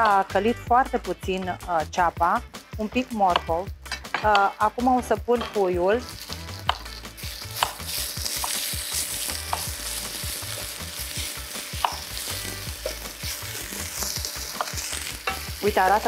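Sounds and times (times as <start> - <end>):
vegetables sizzling in a frying pan: 5.9 - 16.0.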